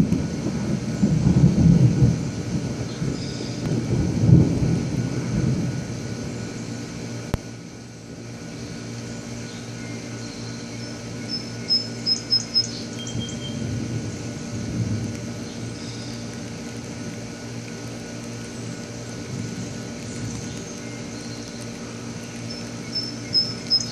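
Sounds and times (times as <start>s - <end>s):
thunder rumbling: 0.0s - 6.6s, 12.1s - 15.4s.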